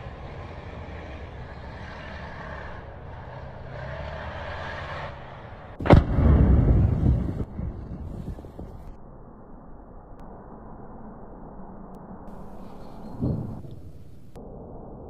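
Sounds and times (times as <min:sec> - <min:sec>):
low engine rumble: 0:00.0 - 0:09.4, 0:12.2 - 0:14.6
loud explosion: 0:05.8 - 0:08.9, 0:12.3 - 0:14.7.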